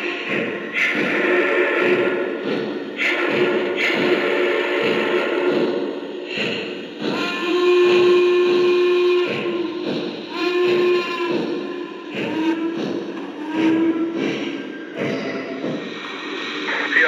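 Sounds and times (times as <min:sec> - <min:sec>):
model train steam whistle: 0:00.0 - 0:05.8, 0:07.0 - 0:14.7
model locomotive hiss and rumble: 0:00.0 - 0:12.8, 0:16.0 - 0:17.0.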